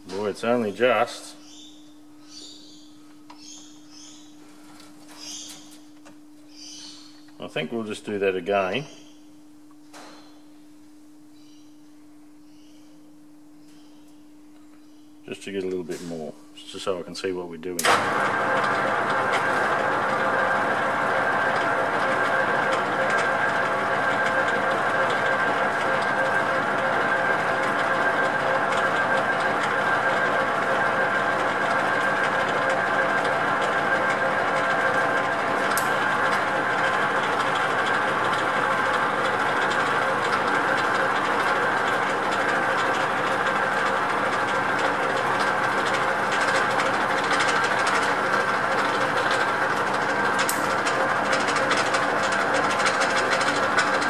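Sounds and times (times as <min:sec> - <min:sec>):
metal lathe whirring: 0:17.8 - 0:54.0.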